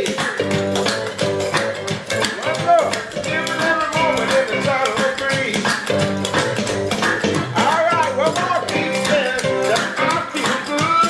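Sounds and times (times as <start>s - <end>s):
clicking beat: 0.0s - 11.0s
person singing: 2.0s - 6.4s, 7.2s - 11.0s.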